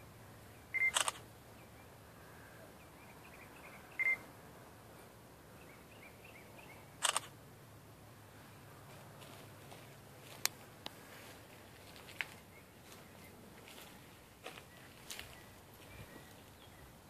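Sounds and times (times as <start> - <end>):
camera focus beep: 0.7 - 1.2, 4.0 - 4.2, 7.0 - 7.3
camera shutter click: 0.8 - 1.2, 7.0 - 7.3.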